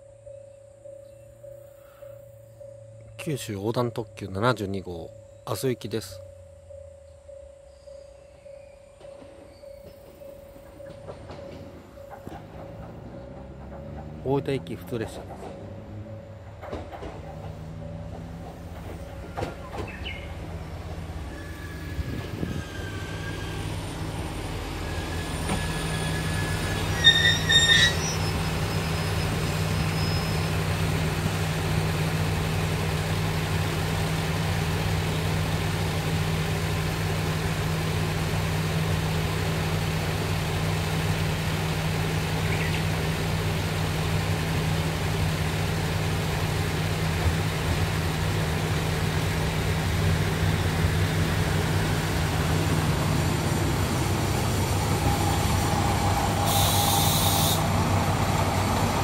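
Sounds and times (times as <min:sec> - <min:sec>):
diesel railcar engine idling: 0:00.0 - 0:59.0
train arriving: 0:00.0 - 0:59.0
air hiss: 0:56.3 - 0:57.7.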